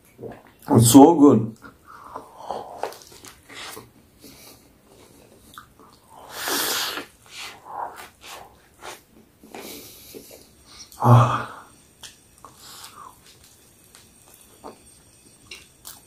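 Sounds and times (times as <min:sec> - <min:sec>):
person breathing and sniffing: 0:01.8 - 0:05.4, 0:06.0 - 0:11.8, 0:12.4 - 0:13.3.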